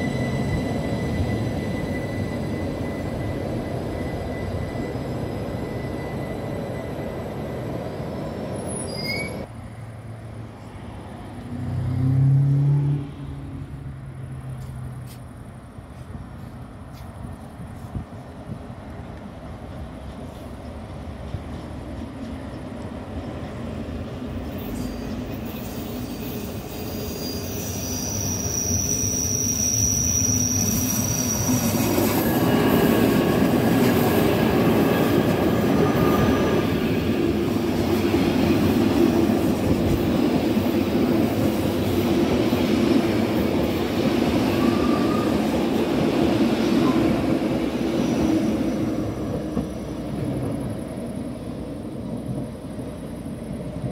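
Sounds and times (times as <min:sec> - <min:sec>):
high wheel squeal: 0:00.0 - 0:09.5, 0:24.6 - 0:33.8, 0:44.4 - 0:45.7
train passing: 0:00.0 - 0:53.9.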